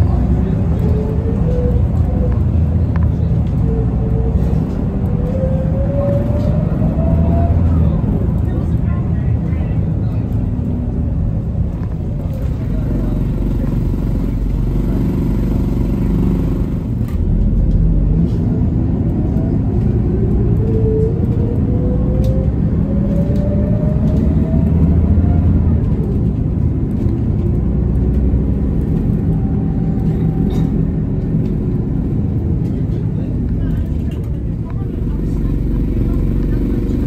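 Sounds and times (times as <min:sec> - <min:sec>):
bus engine rumble: 0:00.0 - 0:37.0
rising drivetrain whine: 0:11.4 - 0:32.8.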